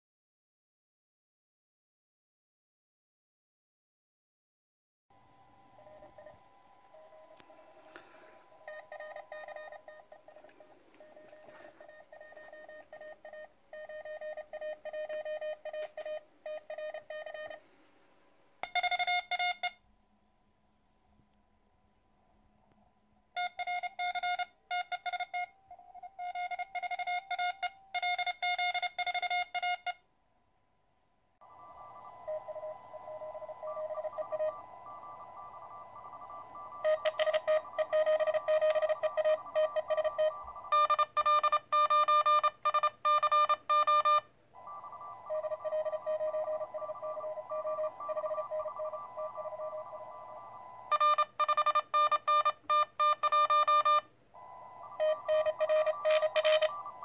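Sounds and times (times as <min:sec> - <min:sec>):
morse code beeps: 0:05.5 - 0:17.7, 0:18.6 - 0:19.8, 0:23.4 - 0:30.0, 0:31.5 - 0:57.0
receiver hiss: 0:31.4 - 0:41.7, 0:42.4 - 0:53.2, 0:54.0 - 0:57.0.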